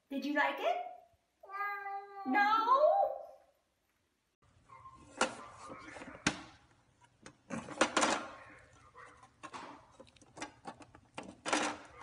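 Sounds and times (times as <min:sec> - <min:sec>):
plastic cage door rattling: 0:10.4 - 0:12.0.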